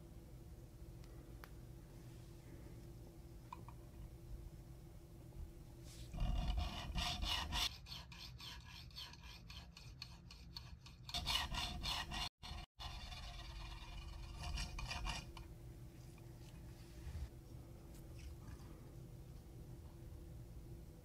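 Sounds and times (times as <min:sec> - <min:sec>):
rhythmic rasping rub of burnisher: 0:05.8 - 0:15.4.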